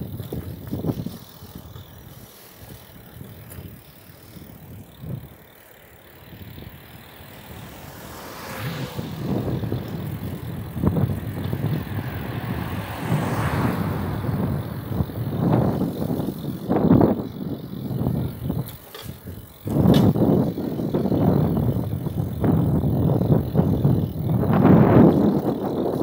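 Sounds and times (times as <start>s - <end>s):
wind buffeting microphone: 0.0s - 5.4s, 6.2s - 26.0s
road rumble: 0.0s - 26.0s
car tyres hissing past: 7.1s - 16.9s.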